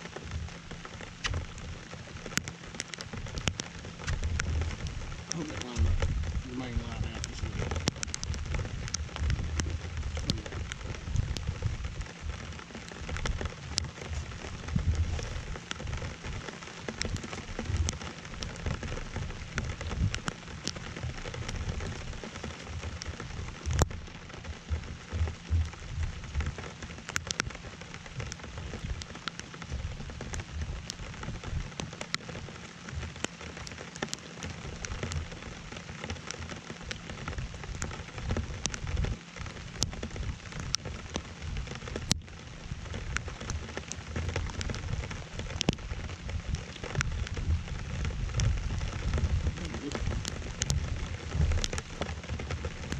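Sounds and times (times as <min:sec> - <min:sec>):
low rumble: 0:00.0 - 0:31.9, 0:37.2 - 0:52.9
rain pattering: 0:00.0 - 0:52.9.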